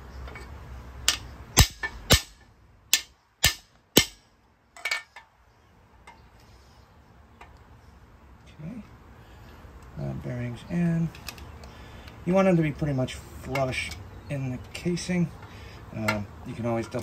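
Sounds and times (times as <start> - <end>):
light metallic clatter: 4.0 - 5.4.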